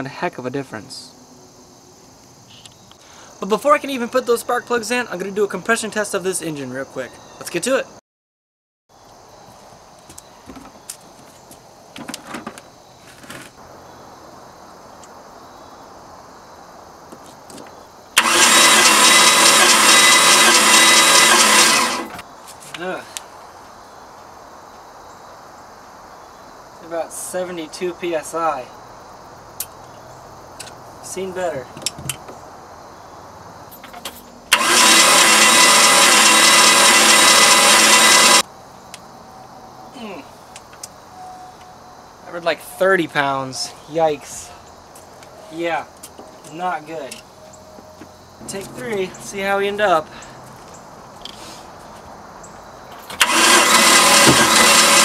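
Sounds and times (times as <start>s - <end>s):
engine cranking on starter motor: 18.1s - 22.2s, 34.5s - 38.4s, 53.0s - 55.0s.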